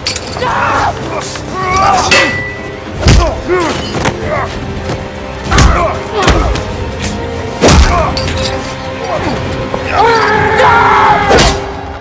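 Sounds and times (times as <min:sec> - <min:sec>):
dramatic music score: 0:00.0 - 0:12.0.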